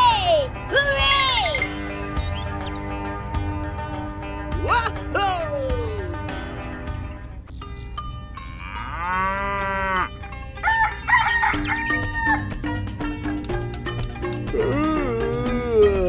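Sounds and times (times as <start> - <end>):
light background music: 0.0 - 16.0
cow mooing: 8.4 - 10.2
rooster crowing: 10.6 - 12.5.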